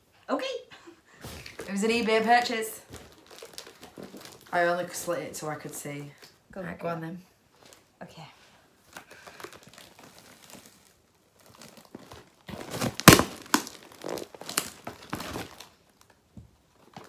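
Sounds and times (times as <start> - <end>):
cardboard parcel crinkling and tearing: 1.2 - 5.0, 8.8 - 17.0.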